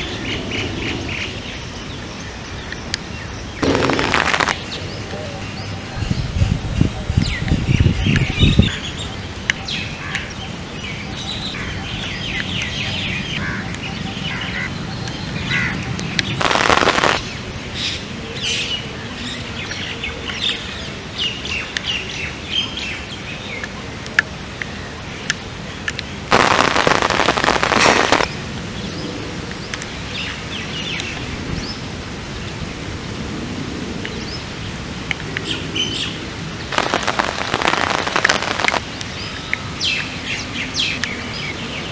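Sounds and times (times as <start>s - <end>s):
birds chirping: 0.0s - 24.0s, 24.6s - 31.8s, 35.4s - 41.9s
rain pattering: 0.0s - 41.9s
loud rush of noise: 3.5s - 5.0s, 16.4s - 17.6s, 26.3s - 29.3s, 34.7s - 39.0s.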